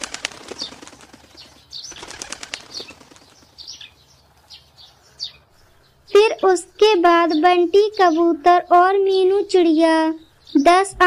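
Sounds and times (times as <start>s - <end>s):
bird wings flapping: 0.0s - 4.0s.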